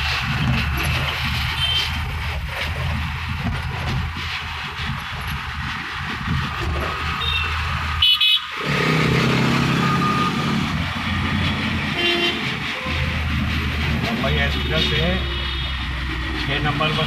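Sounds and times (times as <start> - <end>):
car engine and road noise: 0.0 - 17.0
vehicle horn honking: 7.2 - 8.4, 12.0 - 13.1.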